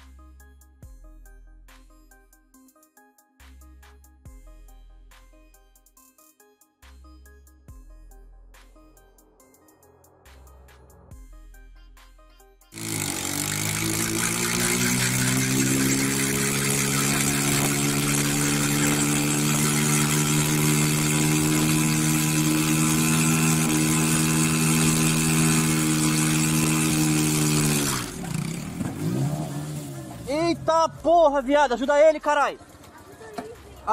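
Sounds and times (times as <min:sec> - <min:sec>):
tyre spinning on road: 0:12.8 - 0:30.3
motorcycle engine revving: 0:12.8 - 0:31.6.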